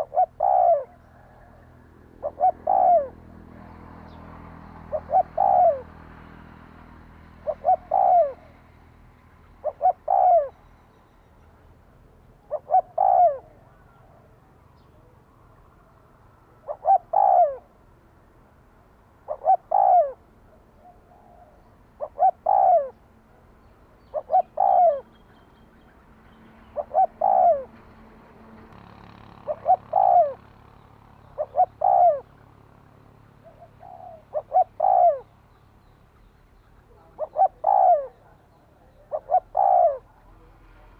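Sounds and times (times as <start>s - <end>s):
dove cooing: 0.0s - 8.8s, 9.6s - 10.6s, 12.3s - 14.4s, 15.8s - 17.8s, 19.2s - 25.2s, 26.6s - 27.9s, 29.3s - 30.6s, 31.2s - 32.5s, 33.4s - 35.3s, 36.9s - 40.9s.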